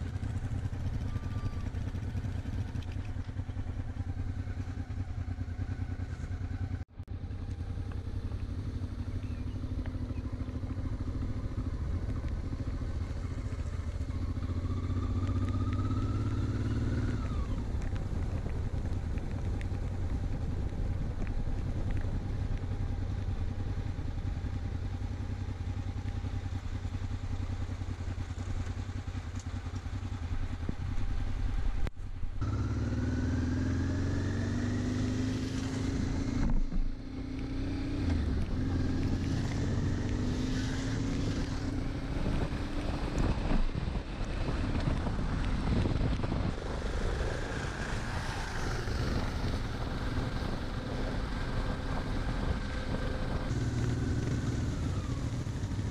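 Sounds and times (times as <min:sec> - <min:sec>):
motorcycle engine accelerating: 0:00.0 - 0:55.9
wind noise: 0:34.5 - 0:55.9.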